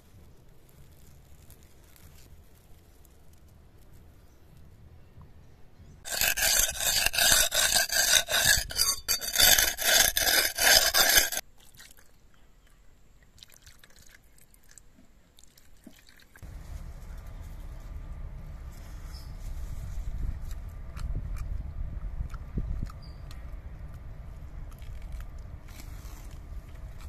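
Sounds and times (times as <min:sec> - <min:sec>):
blade scraping on sharpening stone: 0:06.1 - 0:11.4
low steady rumble: 0:16.4 - 0:27.0.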